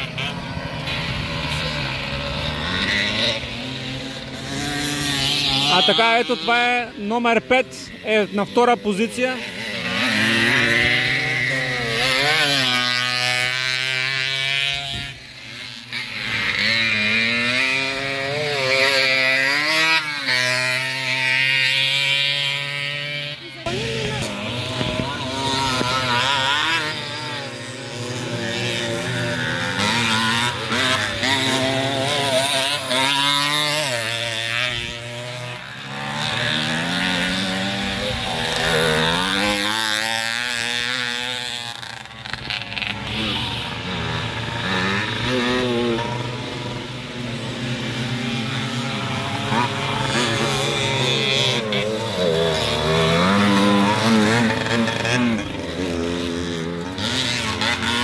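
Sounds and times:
motocross bike engines revving: 0.0 - 58.0.

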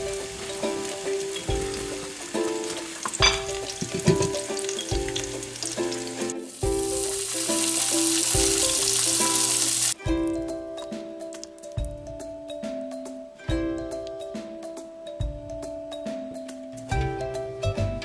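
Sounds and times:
background music: 0.0 - 18.0
steady sizzling hiss: 0.0 - 18.0
sharp knocks against a pot: 3.0 - 5.3.

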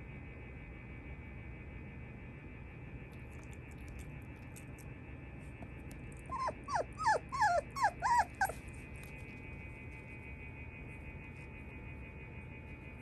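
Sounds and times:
puppy whimpering: 6.2 - 8.7.

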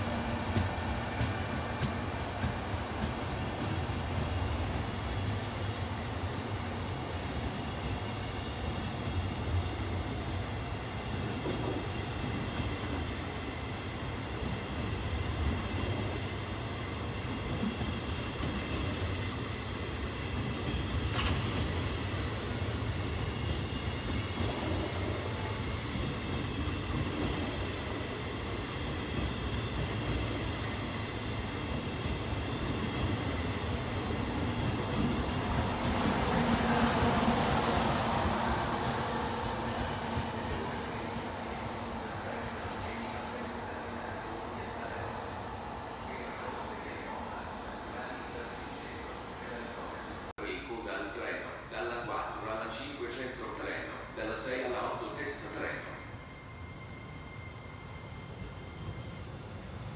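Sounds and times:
train wheels rumbling on rails: 0.0 - 45.6.

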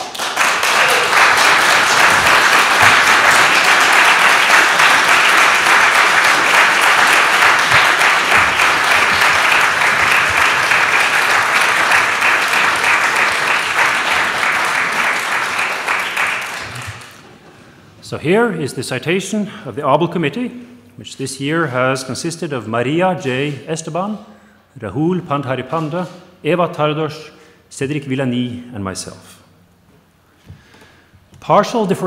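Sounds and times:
audience applauding: 0.0 - 17.5.

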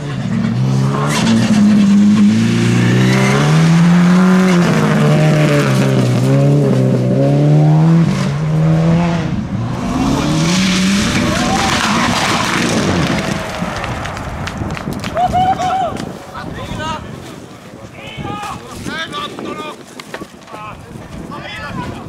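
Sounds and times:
rally car engine revving: 0.0 - 15.1
rally car engine at full throttle: 0.0 - 15.2.

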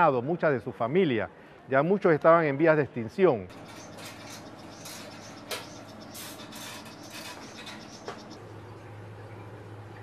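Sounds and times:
faint hum: 3.5 - 10.0.

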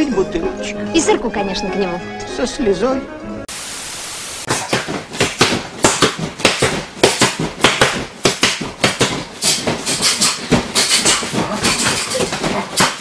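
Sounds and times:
boxing gloves slapping hands: 4.5 - 13.0.

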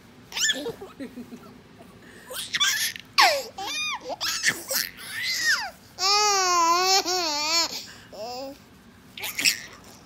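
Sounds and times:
toddler squealing and giggling: 0.3 - 0.8, 2.4 - 7.7, 9.2 - 9.8.

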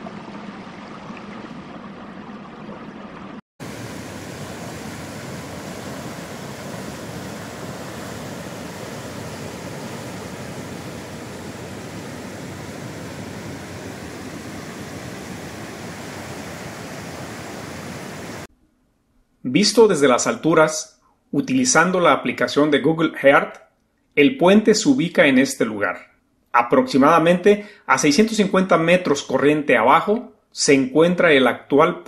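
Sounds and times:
river rushing: 3.6 - 18.5.

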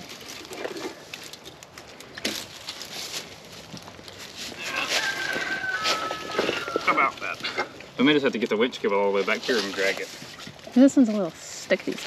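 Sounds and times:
dry leaves and brush rustling: 0.0 - 12.0
knocks and scrapes: 2.2 - 7.9.

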